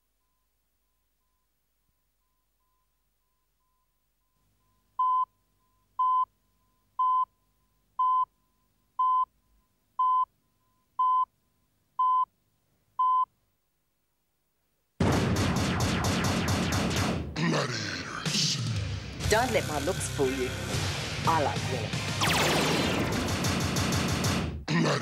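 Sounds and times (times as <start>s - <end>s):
short high electronic beeps: 22.2s - 23.2s.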